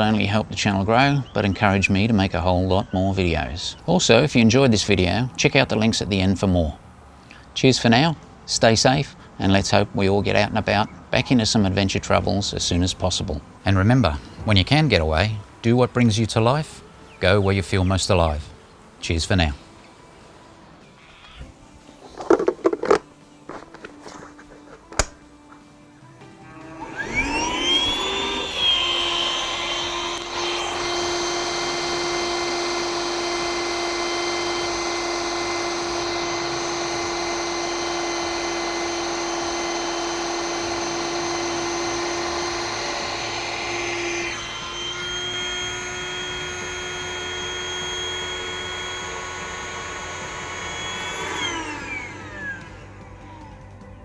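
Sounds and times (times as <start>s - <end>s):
electric air pump whining: 0.0s - 6.8s, 21.0s - 25.1s, 26.2s - 54.0s.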